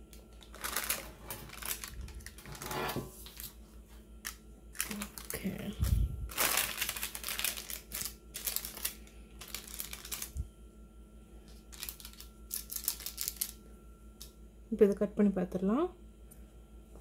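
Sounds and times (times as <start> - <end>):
parchment paper crackling: 0.0 - 10.4, 11.4 - 13.6.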